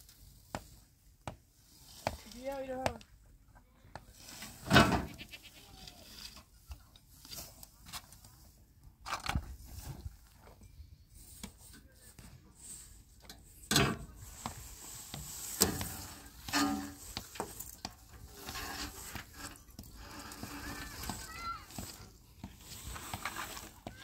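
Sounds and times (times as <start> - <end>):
tarp dragged over rubble: 14.1 - 24.0.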